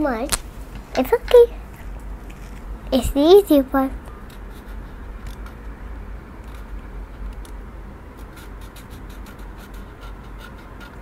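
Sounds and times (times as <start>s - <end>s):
low steady hum: 0.0s - 11.0s
marker scratching on paper: 4.3s - 5.0s, 8.2s - 11.0s.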